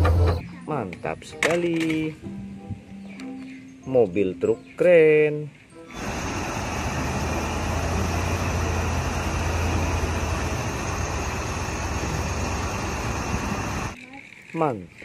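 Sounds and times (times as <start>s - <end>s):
diesel engine rumbling under load: 5.9s - 14.0s.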